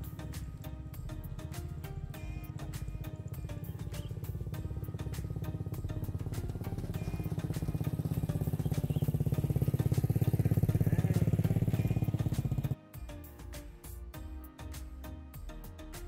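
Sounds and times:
small engine running: 0:00.0 - 0:12.8
background music: 0:00.0 - 0:16.0.

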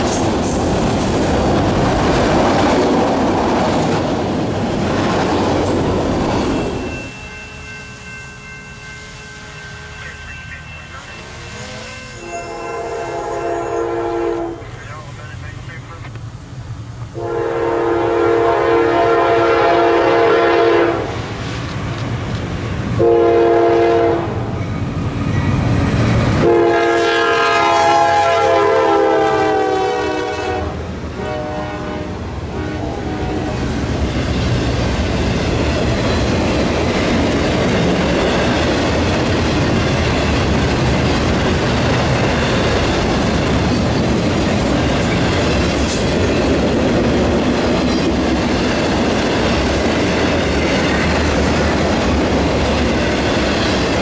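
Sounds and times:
train cars rumbling and clattering: 0:00.0 - 0:54.0
locomotive horn blasts: 0:09.2 - 0:14.7, 0:17.2 - 0:21.1, 0:23.0 - 0:24.4, 0:26.4 - 0:33.6.

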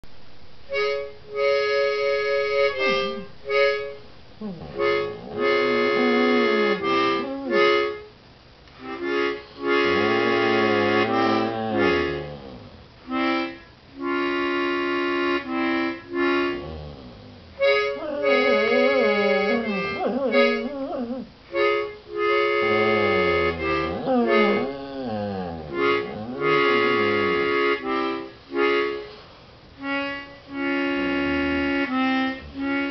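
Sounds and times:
harmonica playing chords: 0:00.7 - 0:08.1, 0:08.8 - 0:29.2, 0:29.8 - 0:32.9
dog howling: 0:04.4 - 0:07.9, 0:09.9 - 0:12.8, 0:16.6 - 0:21.3, 0:22.6 - 0:27.4.

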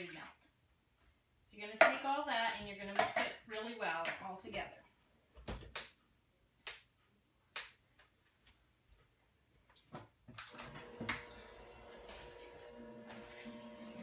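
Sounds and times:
hand mixer motor humming: 0:10.6 - 0:14.0.

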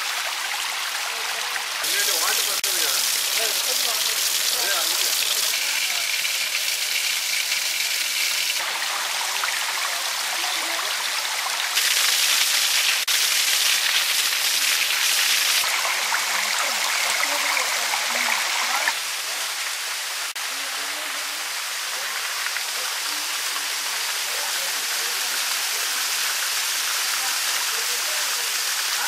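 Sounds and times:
waterfall splashing onto rocks: 0:00.0 - 0:29.0.

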